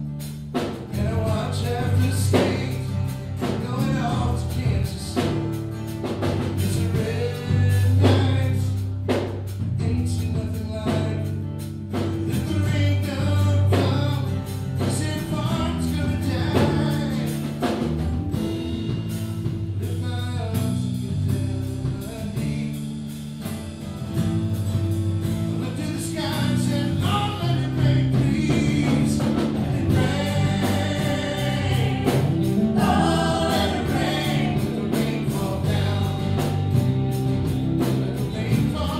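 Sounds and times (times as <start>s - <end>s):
live band playing: 0.0s - 38.9s
people singing: 0.9s - 5.5s, 6.4s - 8.7s, 12.3s - 17.8s, 25.6s - 38.9s.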